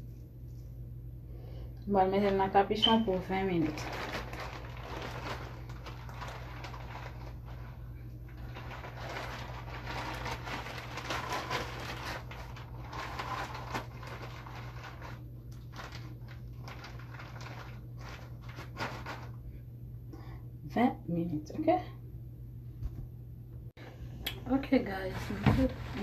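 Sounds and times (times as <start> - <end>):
steady low hum: 0.0 - 26.0
shower cap rustling and crinkling: 2.8 - 19.6.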